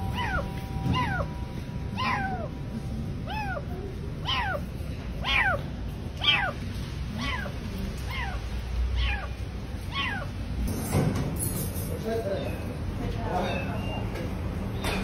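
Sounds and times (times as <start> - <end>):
kitten meowing: 0.0 - 2.6, 3.2 - 10.4, 12.4 - 14.0.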